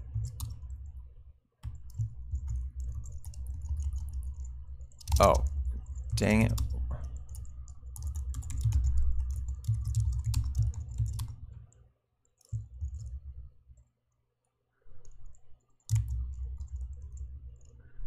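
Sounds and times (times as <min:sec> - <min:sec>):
typing on computer keyboard: 0:00.0 - 0:01.0, 0:01.6 - 0:11.7, 0:12.4 - 0:13.2, 0:15.8 - 0:17.8.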